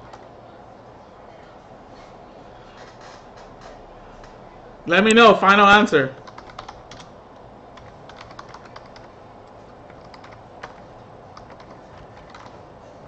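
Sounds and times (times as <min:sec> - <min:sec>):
keyboard typing clicks: 0:06.2 - 0:07.1, 0:07.8 - 0:09.1, 0:09.9 - 0:12.6.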